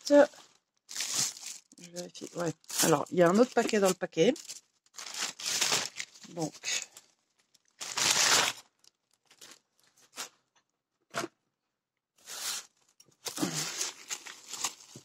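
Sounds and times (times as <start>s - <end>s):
plastic mailer bag crinkling: 0.1s - 9.6s, 13.3s - 15.0s.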